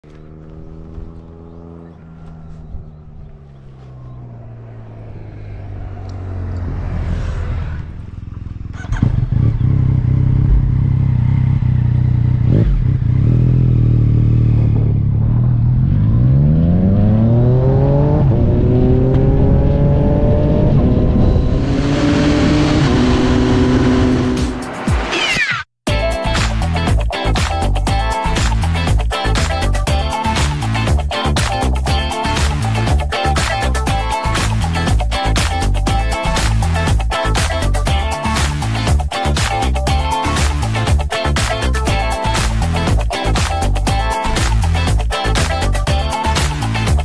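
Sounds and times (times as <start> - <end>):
motorcycle engine accelerating: 0.0 - 24.8
wind noise: 18.1 - 24.1.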